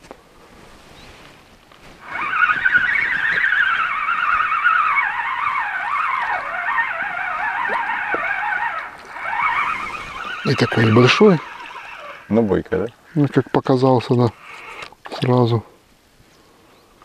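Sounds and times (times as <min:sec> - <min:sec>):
fishing reel gears whining: 0:02.0 - 0:12.4.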